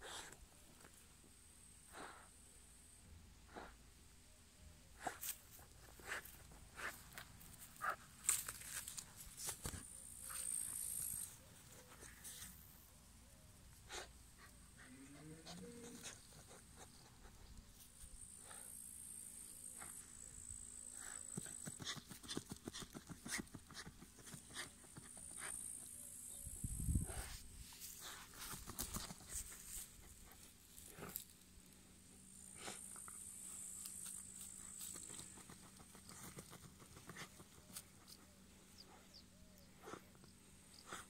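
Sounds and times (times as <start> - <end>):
dog paws scratching soil: 5.0 - 12.9, 13.8 - 18.2, 21.0 - 25.8, 27.0 - 31.5, 32.6 - 39.0.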